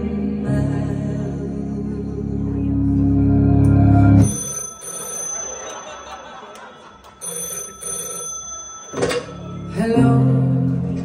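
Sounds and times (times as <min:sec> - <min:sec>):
telephone ringing: 0:04.2 - 0:10.0.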